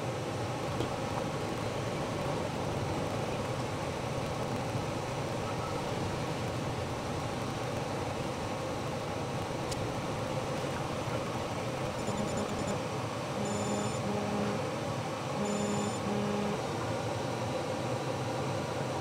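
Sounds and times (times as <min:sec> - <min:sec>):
air conditioner whirring: 0:00.0 - 0:19.0.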